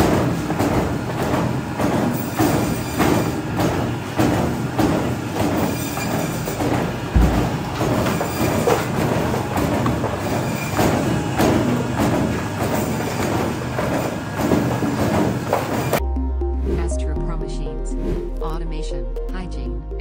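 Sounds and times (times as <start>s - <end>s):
meat cutting blade chopping: 0.0s - 15.9s
mechanical hum: 0.0s - 16.0s.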